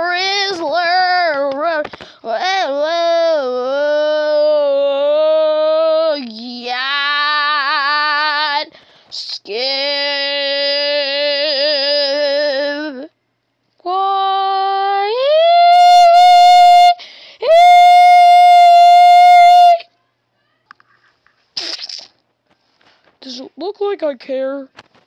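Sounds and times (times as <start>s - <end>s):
person singing long held notes: 13.9s - 19.9s.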